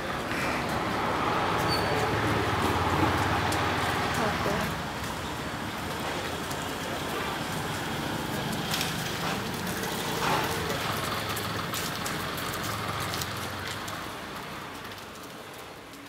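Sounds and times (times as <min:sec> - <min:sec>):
traffic noise: 0:00.0 - 0:16.0.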